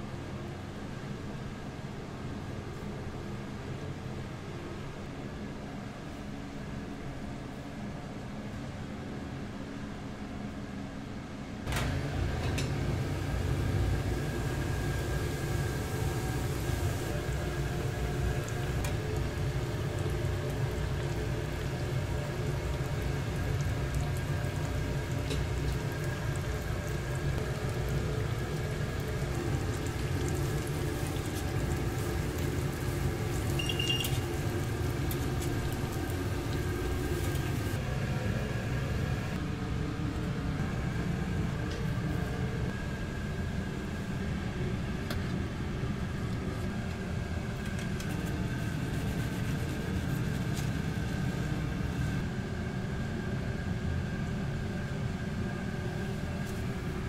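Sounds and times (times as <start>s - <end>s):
low kitchen rumble: 11.6s - 57.0s
oil bubbling and sizzling: 12.0s - 38.9s
faint beep: 33.6s - 34.1s.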